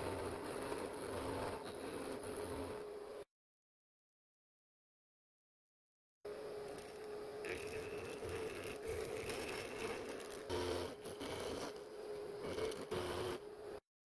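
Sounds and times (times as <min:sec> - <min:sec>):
milling spindle whine: 0:00.0 - 0:03.2, 0:06.3 - 0:13.8.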